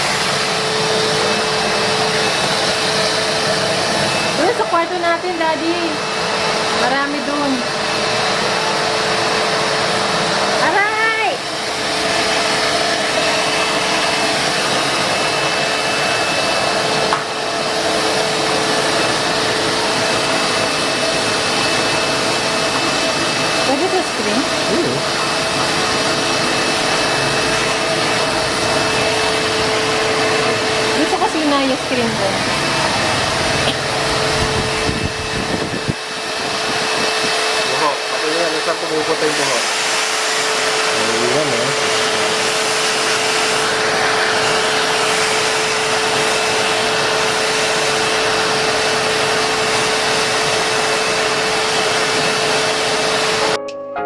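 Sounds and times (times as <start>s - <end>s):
vacuum cleaner running: 0.0s - 53.8s.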